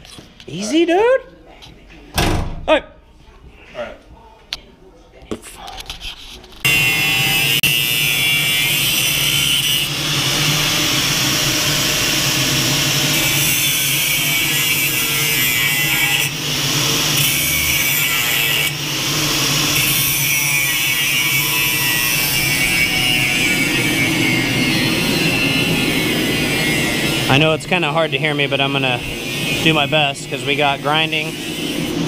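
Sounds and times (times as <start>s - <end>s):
angle grinder cutting metal: 6.6s - 32.0s.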